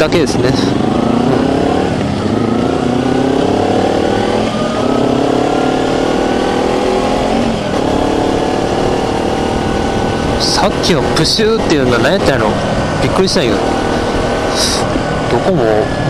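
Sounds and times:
motorcycle engine accelerating: 0:00.0 - 0:16.0.

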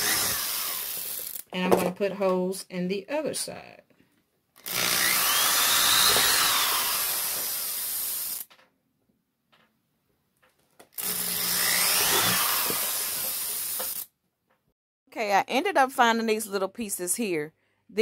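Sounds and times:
power drill boring: 0:00.0 - 0:01.4, 0:04.6 - 0:08.5, 0:10.9 - 0:14.1.

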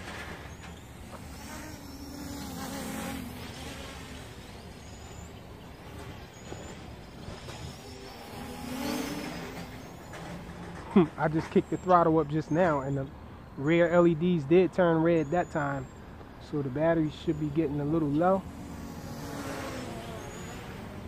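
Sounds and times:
low traffic rumble: 0:00.0 - 0:21.0
vehicle engine passing: 0:01.0 - 0:12.7, 0:16.5 - 0:21.0.

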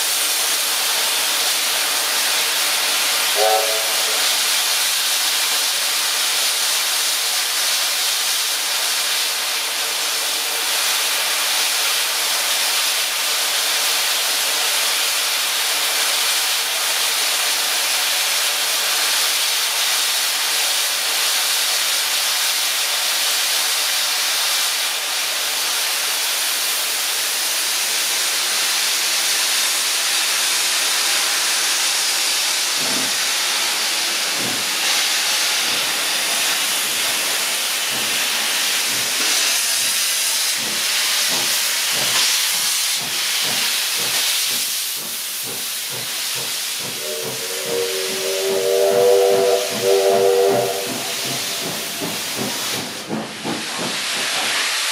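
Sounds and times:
steam locomotive hissing: 0:00.0 - 0:54.9.

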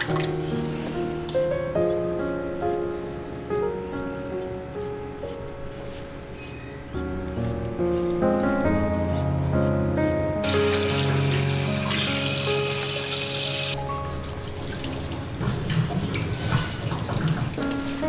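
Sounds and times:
water splashing and dripping: 0:00.0 - 0:00.4, 0:10.5 - 0:18.0
shower head spraying water: 0:10.4 - 0:13.8.

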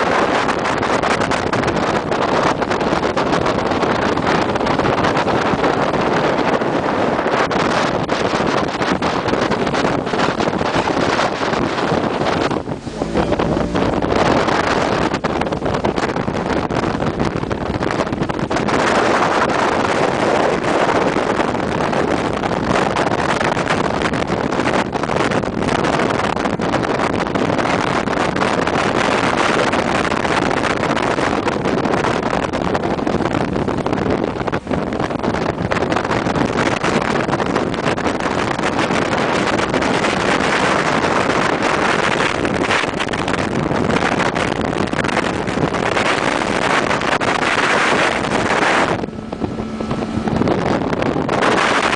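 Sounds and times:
water rushing: 0:00.0 - 0:21.2, 0:45.0 - 0:51.9
motorboat engine: 0:00.0 - 0:51.9
wind on microphone: 0:00.0 - 0:51.9.

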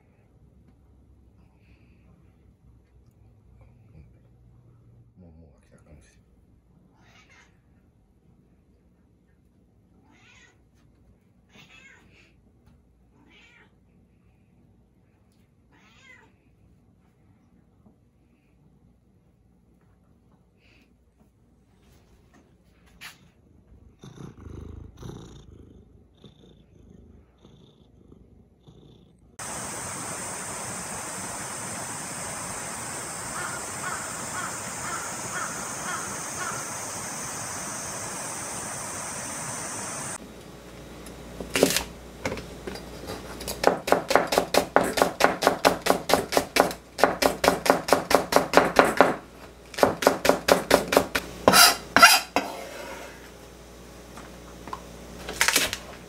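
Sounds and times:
cat purring: 0:23.7 - 0:32.0
steady high hiss: 0:29.4 - 0:43.4
crow cawing: 0:33.1 - 0:37.2
knife chopping on cutting board: 0:43.6 - 0:49.2, 0:49.8 - 0:52.7.

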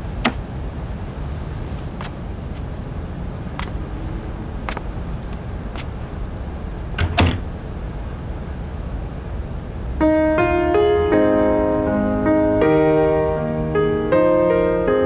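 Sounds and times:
low background rumble: 0:00.0 - 0:15.0
piano music: 0:10.0 - 0:15.0.

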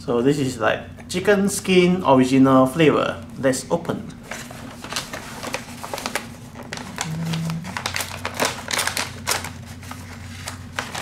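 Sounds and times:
plastic snack bag crinkling: 0:04.6 - 0:11.0.

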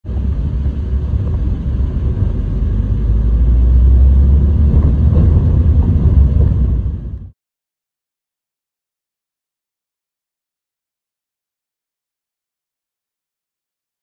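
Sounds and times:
car rumble from inside cabin: 0:00.1 - 0:07.3.

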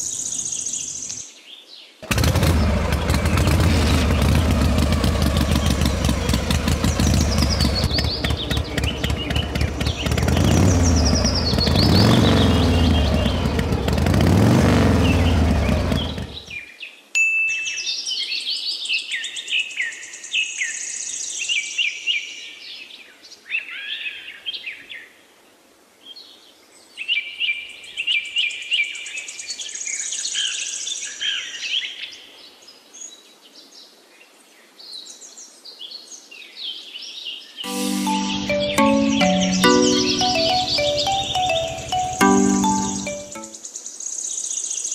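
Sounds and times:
birds chirping and singing: 0:02.3 - 0:14.0.

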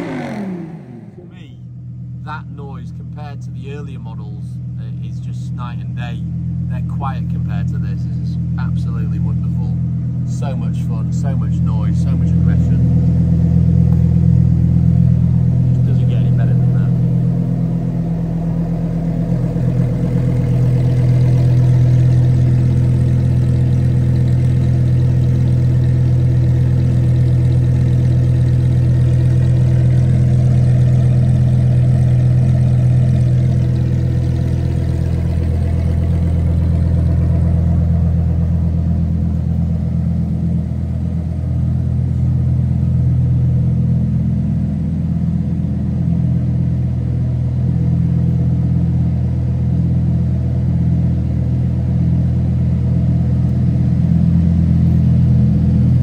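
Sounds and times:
sports car engine idling: 0:00.0 - 0:56.0.

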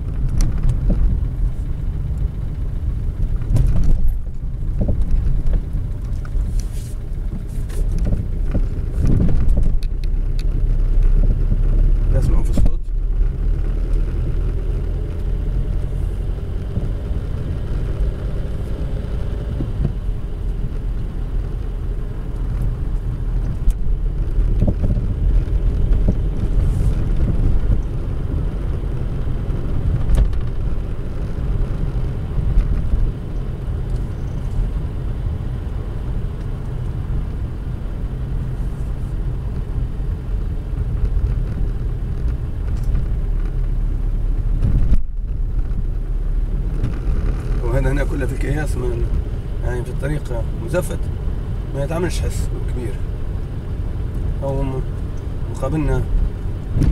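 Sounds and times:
tyre and engine rumble: 0:00.0 - 0:56.9
suspension knocks: 0:56.1 - 0:56.9.

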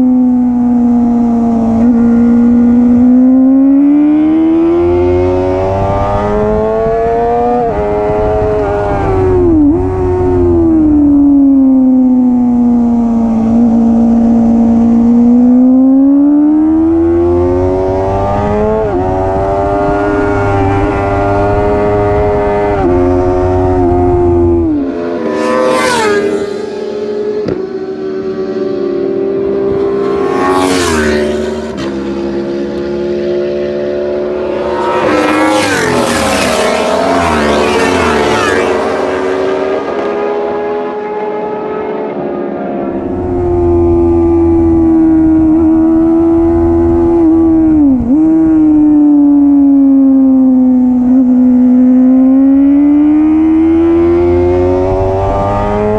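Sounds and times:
motorcycle engine at high revs: 0:00.0 - 0:55.9
motorcycle passing by: 0:00.1 - 0:55.9.

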